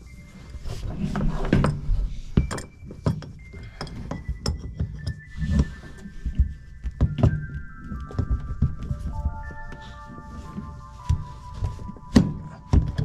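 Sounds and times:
background music: 0:00.0 - 0:13.0
wrench clinking on pipe fitting: 0:02.4 - 0:05.3.

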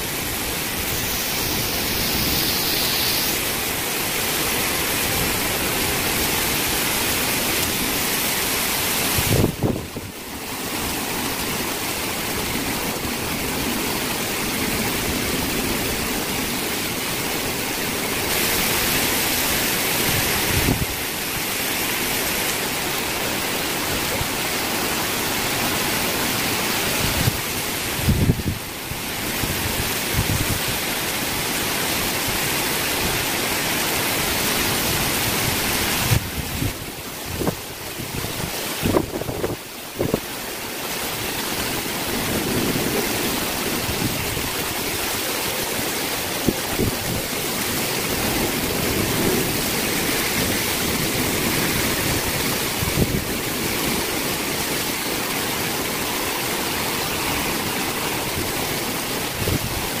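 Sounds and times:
heavy rain downpour: 0:00.0 - 1:00.0
wind buffeting the microphone: 0:09.0 - 0:10.6, 0:19.9 - 0:21.9, 0:26.9 - 0:30.8, 0:34.8 - 0:40.3, 0:46.3 - 0:54.7, 0:57.5 - 1:00.0.

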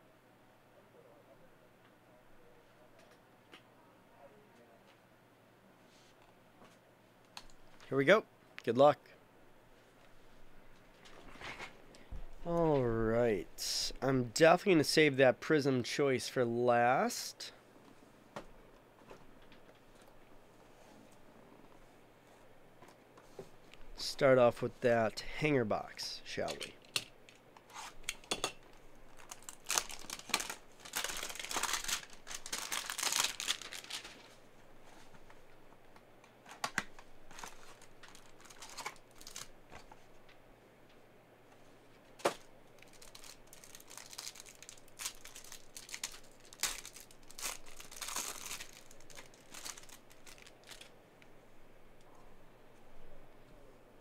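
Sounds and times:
plastic wrap crinkling: 0:27.7 - 0:34.4, 0:36.5 - 0:39.6, 0:42.2 - 0:51.0.

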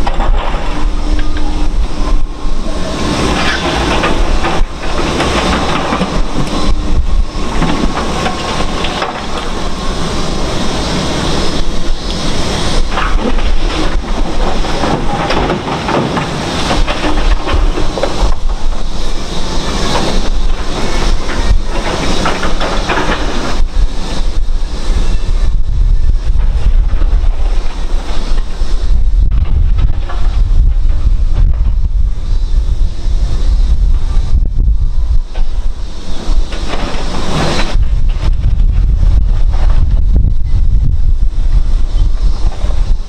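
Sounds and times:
scrap metal clatter: 0:00.0 - 0:10.0, 0:12.4 - 0:23.7, 0:35.4 - 0:38.8
heavy machinery running: 0:00.0 - 0:43.0.

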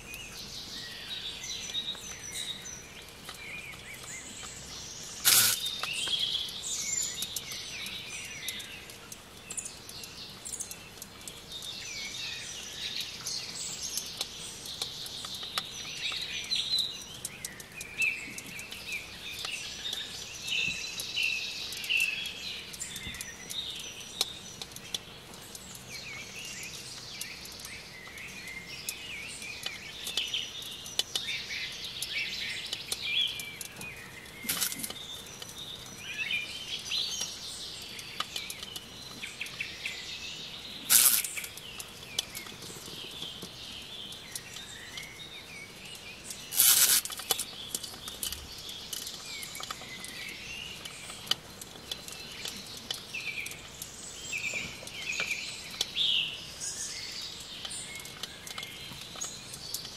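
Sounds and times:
songbirds chirping and singing: 0:00.0 - 0:46.6.

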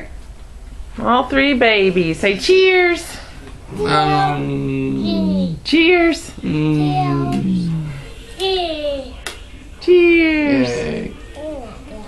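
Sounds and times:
man chanting long note: 0:07.4 - 0:08.1.

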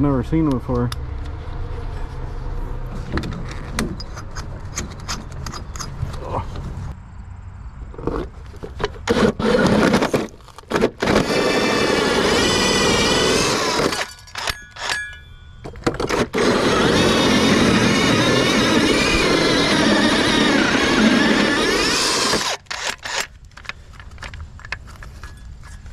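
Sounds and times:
drill with hole saw cutting siding: 0:08.8 - 0:15.0, 0:15.8 - 0:23.3.

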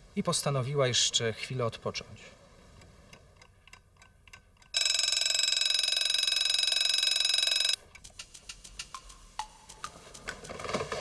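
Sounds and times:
alarm clock bell ringing: 0:04.8 - 0:07.8.

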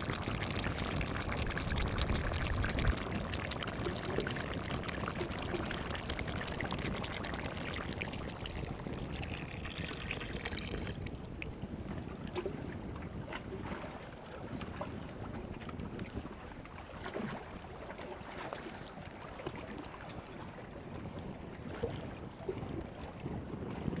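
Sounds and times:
liquid pouring into a pot: 0:00.0 - 0:11.5.

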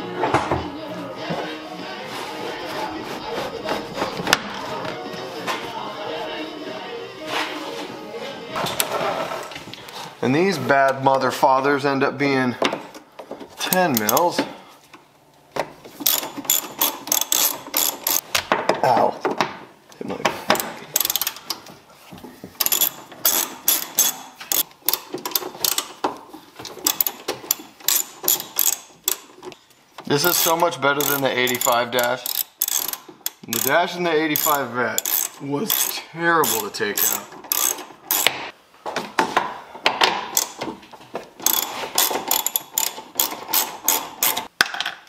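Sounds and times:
hand ratchet clicking: 0:13.6 - 0:14.4, 0:16.0 - 0:18.2, 0:20.6 - 0:21.6, 0:22.6 - 0:26.0, 0:26.7 - 0:29.6, 0:30.2 - 0:38.5, 0:40.3 - 0:40.6, 0:41.4 - 0:44.5.

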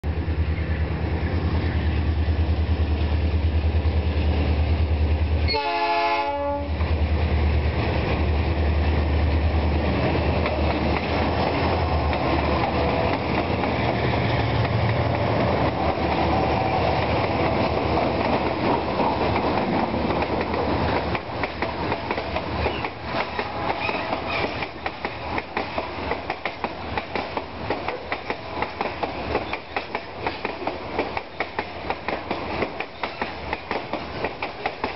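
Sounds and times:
diesel locomotive engines droning: 0:00.0 - 0:34.9
train horn blast: 0:05.4 - 0:06.8
train wheels clattering on rails: 0:06.8 - 0:34.9.

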